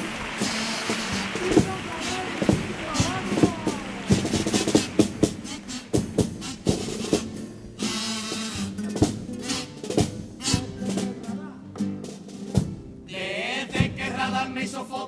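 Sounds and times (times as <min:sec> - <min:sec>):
bass drum beating: 0:00.0 - 0:07.9, 0:08.7 - 0:11.3
guitar chords: 0:00.0 - 0:07.9
snare drum strokes: 0:00.0 - 0:12.9, 0:13.6 - 0:14.4.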